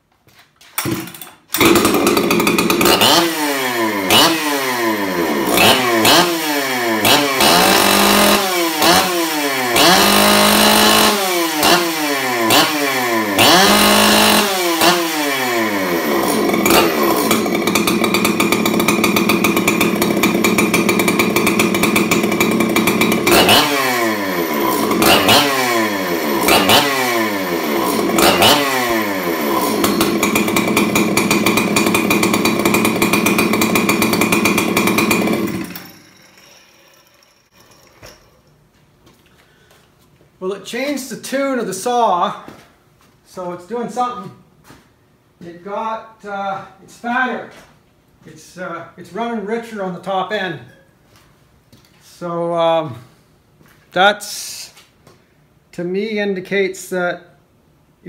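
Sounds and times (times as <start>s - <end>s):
chainsaw engine revving: 0.8s - 38.4s.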